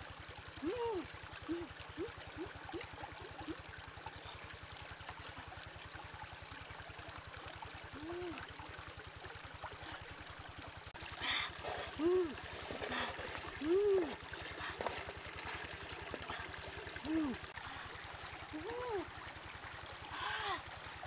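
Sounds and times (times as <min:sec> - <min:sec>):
forest stream rushing: 0:00.0 - 0:21.0
person humming: 0:00.6 - 0:02.8, 0:08.0 - 0:08.4, 0:11.2 - 0:19.1, 0:20.1 - 0:20.7.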